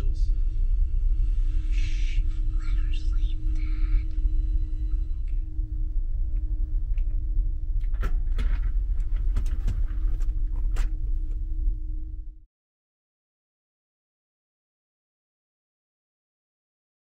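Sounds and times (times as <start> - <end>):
ferry engines droning: 0.0 - 12.2.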